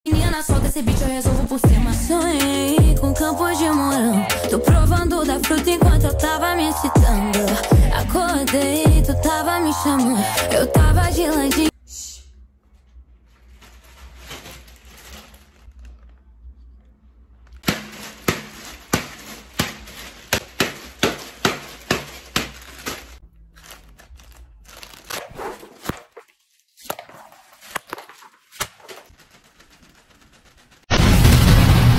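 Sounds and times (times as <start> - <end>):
plastic packaging crinkling: 13.2 - 16.7, 17.4 - 30.9.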